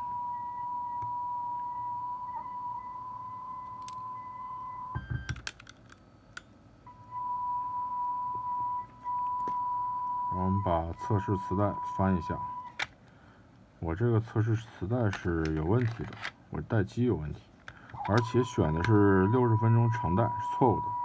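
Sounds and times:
steady test tone: 0:18.0 - 0:21.0.

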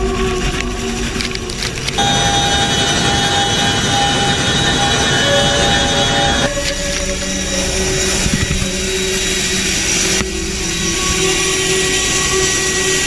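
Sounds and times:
high turbine whine: 0:00.0 - 0:13.0
helicopter engines and rotors roaring: 0:01.7 - 0:10.7.

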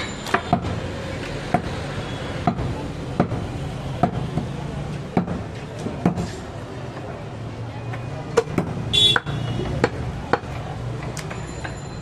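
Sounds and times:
cleaver chopping meat and bone: 0:00.3 - 0:01.8, 0:05.1 - 0:06.2, 0:08.3 - 0:10.6.

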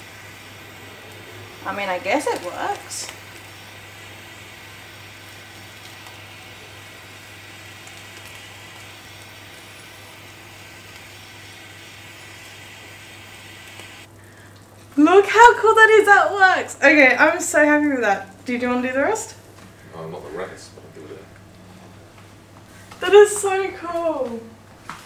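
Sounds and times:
blow torch hissing: 0:00.0 - 0:14.4.

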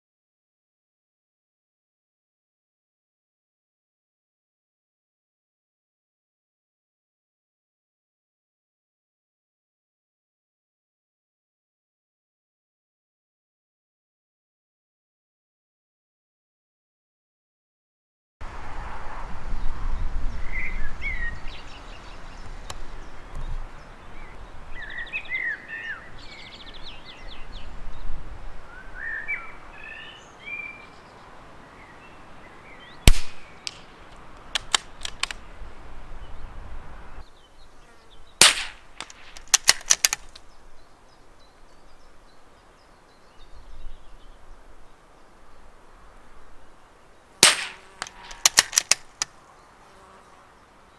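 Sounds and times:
birds chirping: 0:20.3 - 0:50.9
suppressed rifle shots: 0:33.1 - 0:33.8, 0:38.4 - 0:40.3, 0:47.4 - 0:49.1
sharp clicks: 0:33.1 - 0:35.4, 0:38.4 - 0:40.4, 0:47.4 - 0:49.3.

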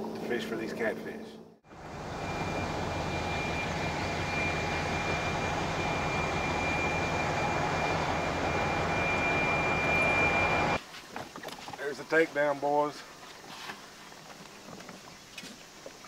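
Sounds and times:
boat diesel engine drone: 0:01.6 - 0:10.8
high whine: 0:01.6 - 0:10.8.

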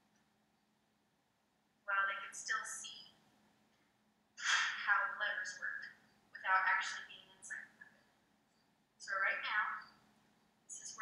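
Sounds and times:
woman talking: 0:01.9 - 0:03.1, 0:04.4 - 0:07.8, 0:09.0 - 0:09.9, 0:10.7 - 0:11.0.

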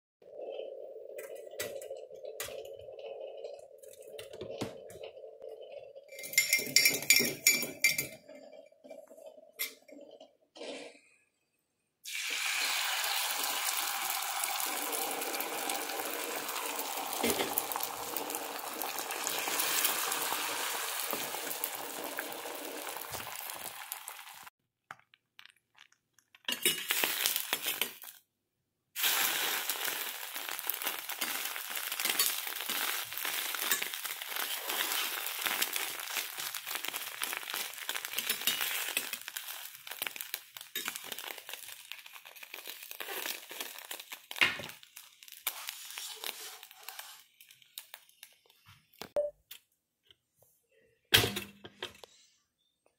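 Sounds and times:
egg sizzling in a frying pan: 0:12.0 - 0:28.2, 0:29.0 - 0:48.7.

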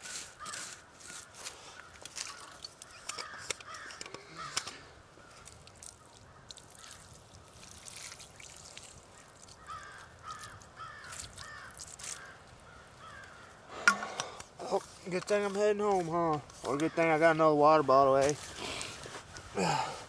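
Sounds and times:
birds calling: 0:00.0 - 0:07.7, 0:08.3 - 0:19.5
trickling and crackling ash: 0:00.0 - 0:20.0
water poured onto wet coals: 0:05.3 - 0:12.6.

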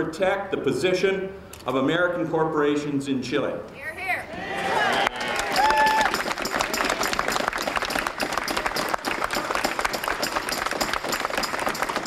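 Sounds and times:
crowd applauding: 0:04.6 - 0:12.0.

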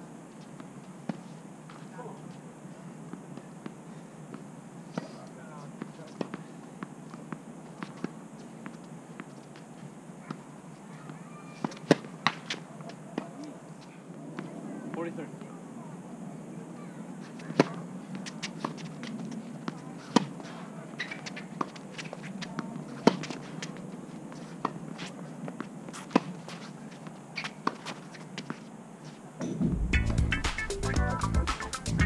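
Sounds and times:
tennis balls struck by rackets: 0:03.1 - 0:15.6, 0:16.8 - 0:28.6
music: 0:29.6 - 0:32.0.

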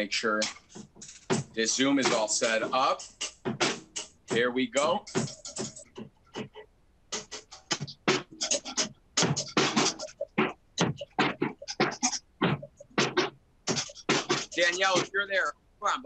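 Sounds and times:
person's voice in choppy bursts: 0:01.6 - 0:03.0, 0:04.3 - 0:05.1, 0:14.6 - 0:16.0.

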